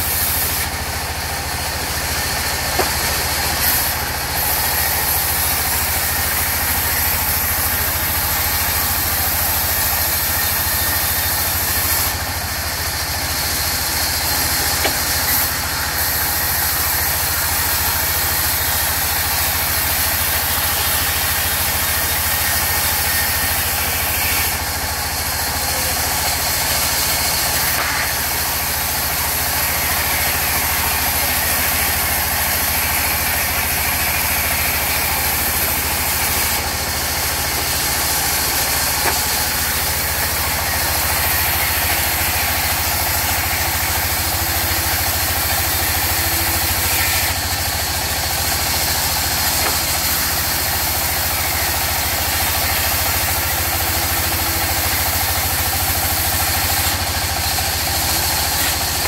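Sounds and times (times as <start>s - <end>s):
band saw ripping wood: 0.0s - 59.0s
machine drone: 20.3s - 59.0s.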